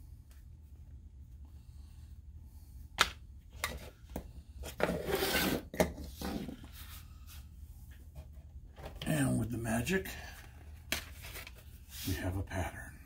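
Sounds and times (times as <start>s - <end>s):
rubbing and scraping: 4.6s - 7.4s.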